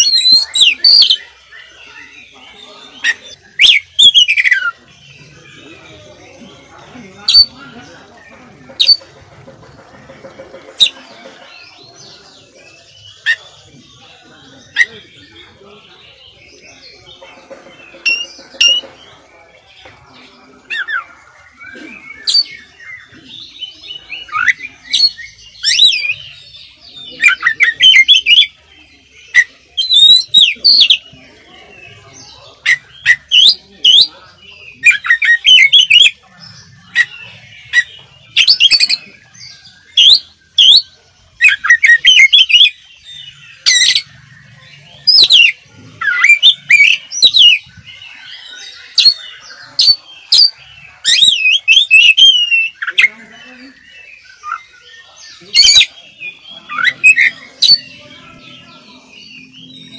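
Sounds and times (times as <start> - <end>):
songbird singing whistles: 0.0 - 2.4, 3.0 - 4.8, 20.6 - 28.6, 29.3 - 31.1, 36.9 - 44.1, 45.0 - 59.9.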